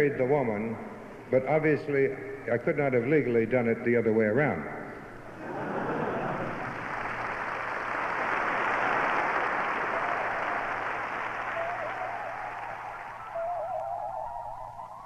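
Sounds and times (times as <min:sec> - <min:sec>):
audience applause: 0:05.3 - 0:14.3
wavering tone: 0:09.9 - 0:15.0.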